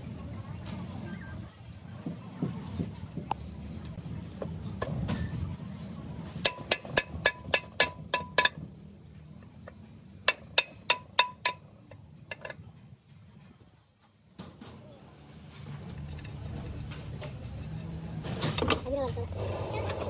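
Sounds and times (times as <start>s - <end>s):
hammer striking metal: 6.4s - 8.6s, 10.2s - 12.0s.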